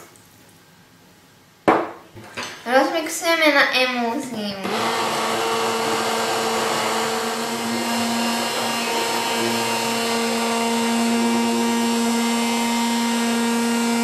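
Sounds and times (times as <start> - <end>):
immersion blender running: 4.6 - 14.0.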